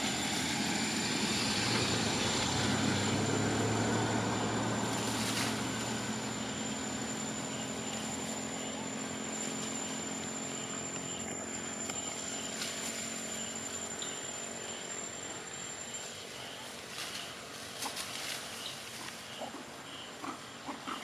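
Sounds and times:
high insect whine: 0:00.0 - 0:20.6
faint chirps: 0:06.0 - 0:21.0.

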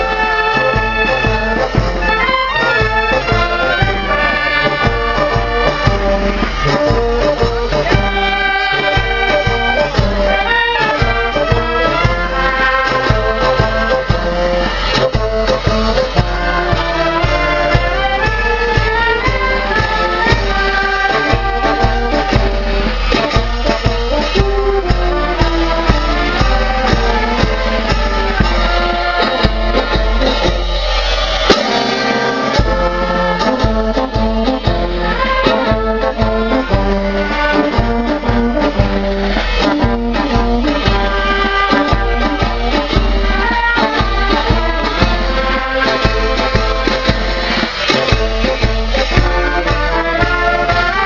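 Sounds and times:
bass drum beat: 0:00.0 - 0:51.0
euphoniums: 0:00.0 - 0:51.0
snare drum: 0:00.0 - 0:51.0
street marching band playing: 0:00.0 - 0:51.0
hand cymbals: 0:25.2 - 0:37.8.

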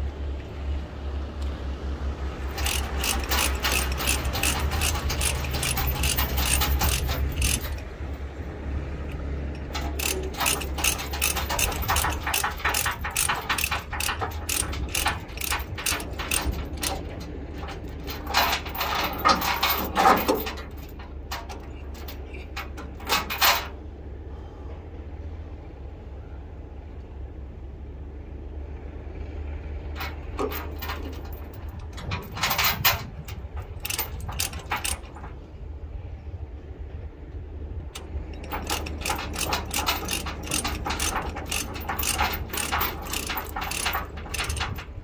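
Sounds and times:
chain clanks: 0:02.4 - 0:08.3, 0:09.6 - 0:23.8, 0:29.9 - 0:35.6, 0:38.0 - 0:45.0
ratchet clicking: 0:02.5 - 0:07.9, 0:09.6 - 0:21.0, 0:30.0 - 0:35.3, 0:37.9 - 0:45.0.

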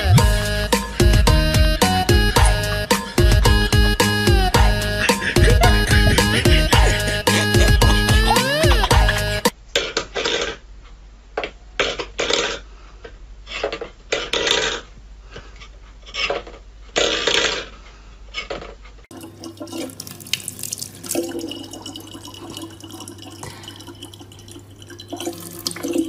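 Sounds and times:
faucet stream into plastic bottle: 0:19.1 - 0:26.0.

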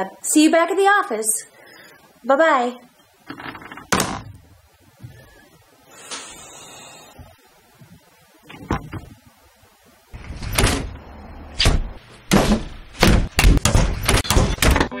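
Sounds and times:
doors slamming shut: 0:03.3 - 0:04.4, 0:10.2 - 0:15.0.

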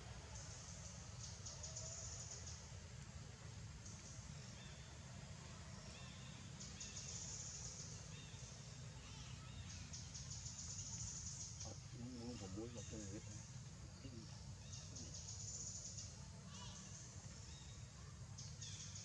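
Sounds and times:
insects trilling: 0:00.3 - 0:19.0.

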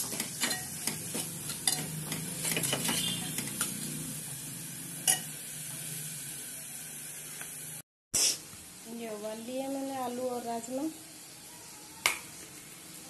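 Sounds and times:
low sizzle of frying: 0:00.0 - 0:13.0
spoon scraping a metal pot: 0:01.4 - 0:03.9.

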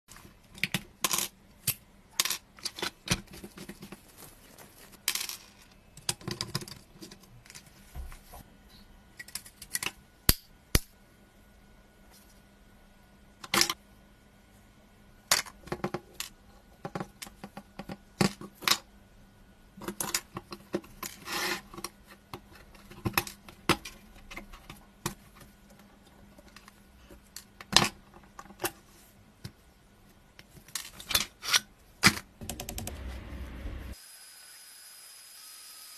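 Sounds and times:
faint low hum: 0:31.7 - 0:34.0.

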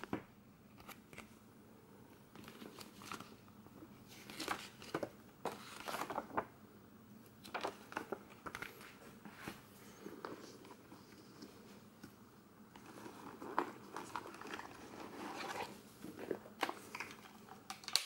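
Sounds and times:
paper pages turning: 0:02.3 - 0:03.4, 0:04.0 - 0:06.5, 0:07.4 - 0:09.6, 0:12.7 - 0:18.0.

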